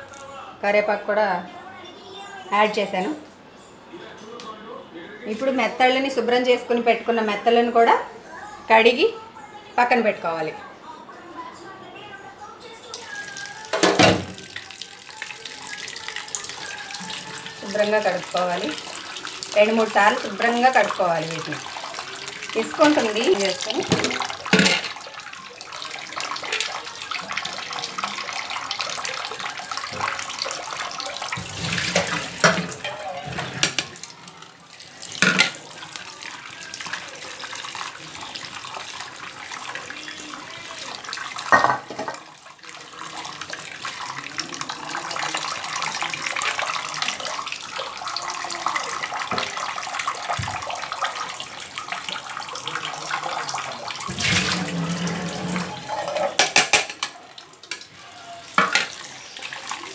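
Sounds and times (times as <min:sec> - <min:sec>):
tap water running into steel bowl: 0:12.9 - 0:59.9
fish rubbed and rinsed by hand: 0:13.1 - 0:41.5, 0:42.6 - 0:56.4.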